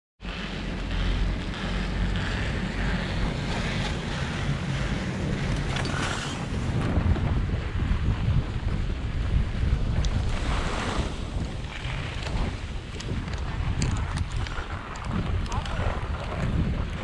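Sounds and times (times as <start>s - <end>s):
wind buffeting microphone: 0.3s - 17.0s.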